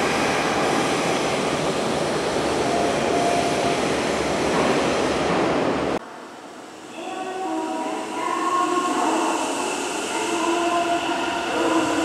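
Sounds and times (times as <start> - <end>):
electric train rumbling on rails: 0.0 - 12.0.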